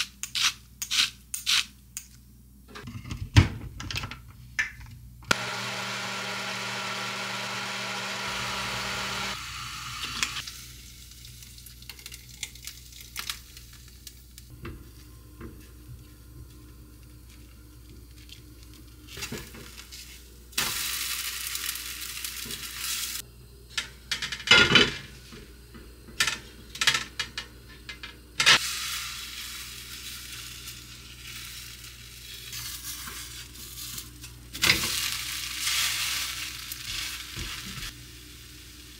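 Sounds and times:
blender running: 0:05.3 - 0:10.4
batter sizzling in a pan: 0:10.3 - 0:14.5, 0:18.0 - 0:23.3, 0:28.6 - 0:38.9.

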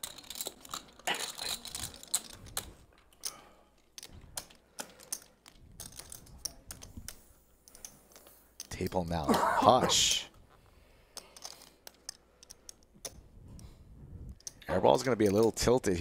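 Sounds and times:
poker chips clicking together: 0:00.0 - 0:09.0, 0:11.1 - 0:13.2, 0:14.4 - 0:15.6.

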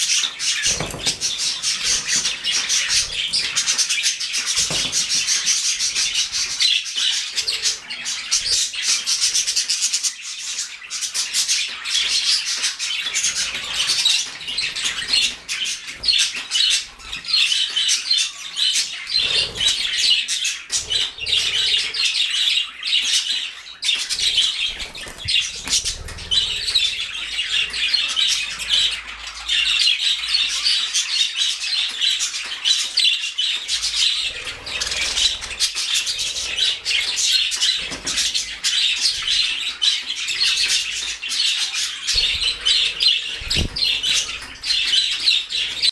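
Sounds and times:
budgerigars chirping and warbling: 0:00.0 - 0:45.9
wing flutters: 0:24.0 - 0:27.3, 0:42.1 - 0:44.8.

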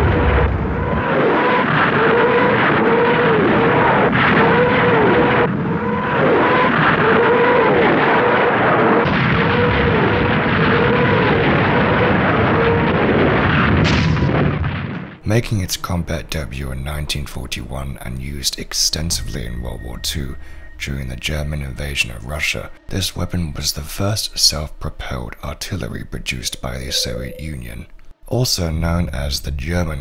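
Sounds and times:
rising and falling howl: 0:00.0 - 0:13.6, 0:25.9 - 0:27.8
rocket launcher salvo roaring: 0:00.0 - 0:14.6, 0:25.7 - 0:27.8.

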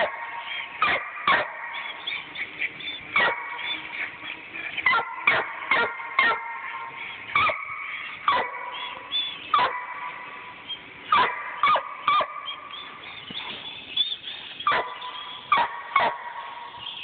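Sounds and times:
dog barking: 0:00.0 - 0:02.4, 0:03.1 - 0:04.2, 0:04.8 - 0:10.5, 0:11.1 - 0:12.7, 0:14.6 - 0:16.9.

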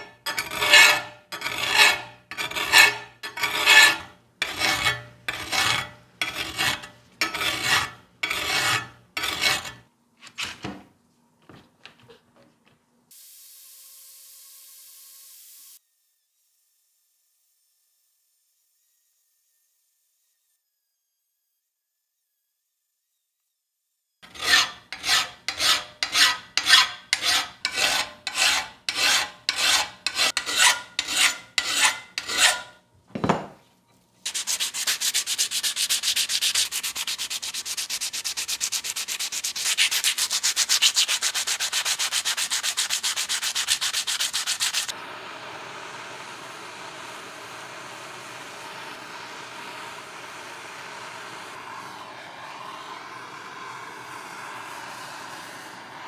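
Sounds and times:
hand filing metal: 0:00.0 - 0:09.8, 0:24.2 - 0:32.8, 0:34.3 - 0:44.9
sanding steel with abrasive paper: 0:00.3 - 0:09.8, 0:24.3 - 0:32.7, 0:34.3 - 0:45.0
steady hiss: 0:34.2 - 0:56.0.

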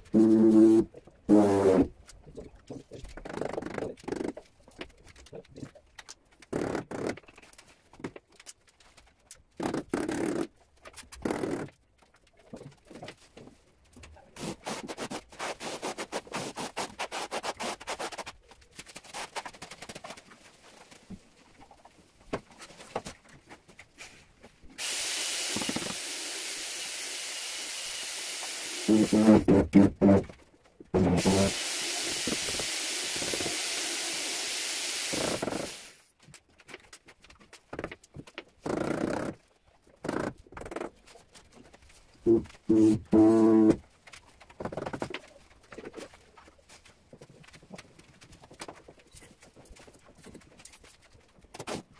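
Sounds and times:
steady machine hiss: 0:24.8 - 0:29.4, 0:31.1 - 0:36.0.

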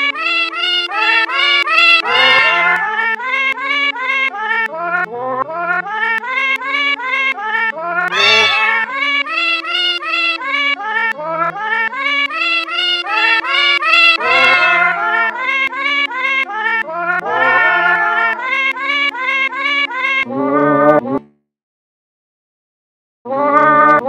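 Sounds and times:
melody of pitch-shifted cat meows: 0:00.0 - 0:21.0, 0:23.3 - 0:24.0
bass line: 0:00.2 - 0:02.8, 0:08.1 - 0:10.6, 0:11.2 - 0:15.9.

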